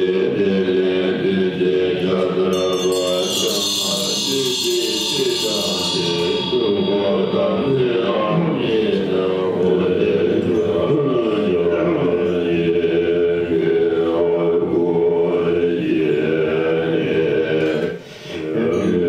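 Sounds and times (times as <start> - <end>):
monks chanting together: 0.0 - 19.0.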